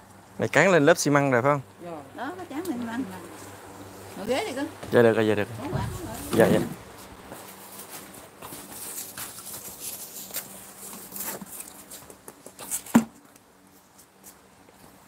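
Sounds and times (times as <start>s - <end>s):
tools scraping and tapping mortar: 8.4s - 13.2s.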